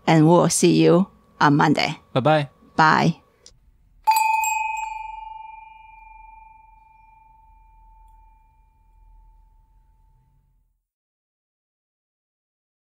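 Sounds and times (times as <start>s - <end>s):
bell ringing: 4.0s - 10.2s.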